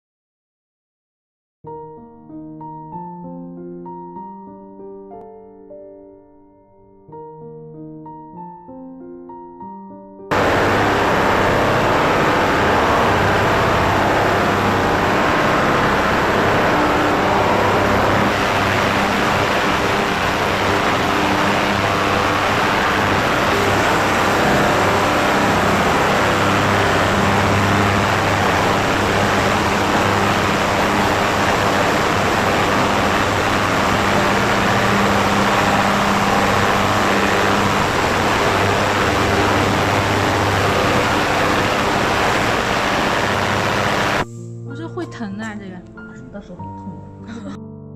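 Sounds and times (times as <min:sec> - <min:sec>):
ultrasonic cleaner hissing: 0:10.3 - 0:44.2.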